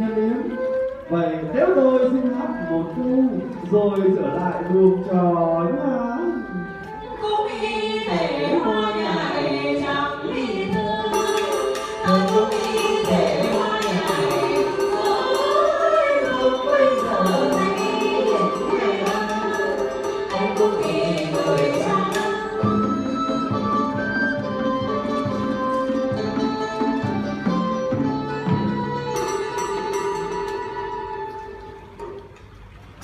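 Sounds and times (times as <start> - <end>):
traditional instrument ensemble: 0.0 - 33.0
person singing folk song: 4.4 - 22.9
sharp clicking percussion: 10.7 - 23.8, 24.9 - 33.0.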